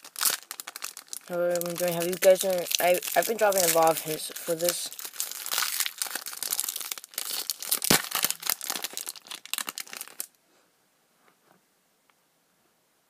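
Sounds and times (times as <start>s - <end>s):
foil wrapper tearing and crinkling: 0.0s - 10.3s
sharp loud crackle: 2.1s - 10.3s.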